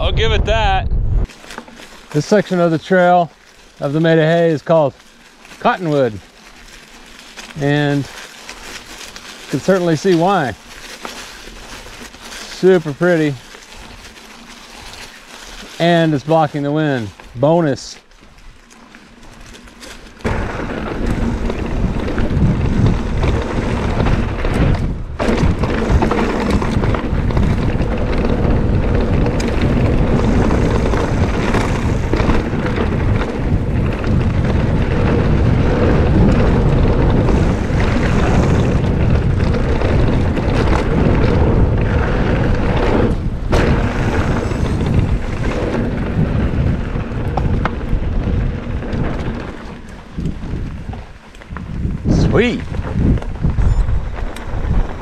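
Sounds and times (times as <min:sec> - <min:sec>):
wind buffeting microphone: 0:00.0 - 0:01.3, 0:20.2 - 0:55.0
bike tyres on dirt trail: 0:01.0 - 0:55.0.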